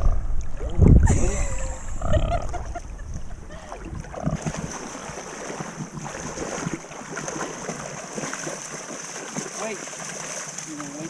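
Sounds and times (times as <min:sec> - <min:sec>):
wind rumbling on microphone: 0:00.0 - 0:06.8
seawater sloshing and splashing: 0:02.6 - 0:11.0.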